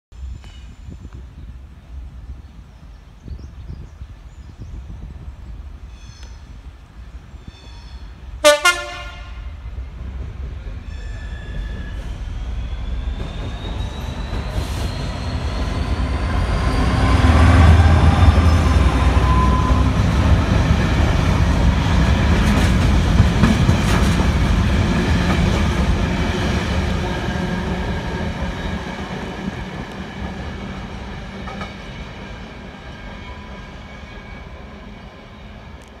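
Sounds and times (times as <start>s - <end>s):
diesel locomotive engine passing: 4.9s - 36.0s
locomotive two-tone horn: 8.4s - 9.6s.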